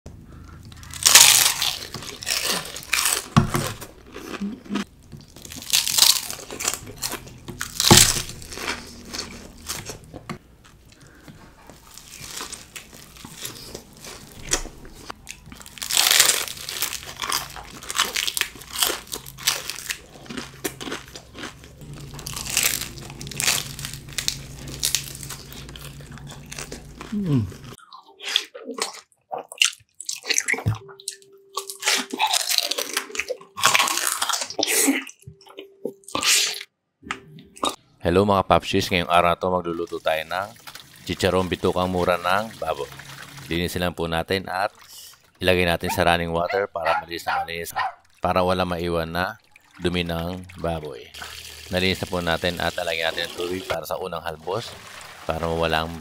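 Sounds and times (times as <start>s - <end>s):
chewing: 0.3s - 36.7s, 44.7s - 48.2s
crunchy bites: 0.5s - 11.1s, 11.7s - 30.6s.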